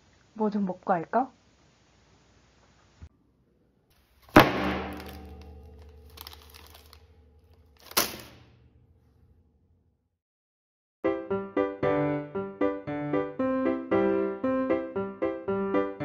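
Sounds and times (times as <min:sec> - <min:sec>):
sudden strike with ringing tail: 0:04.4 - 0:06.5.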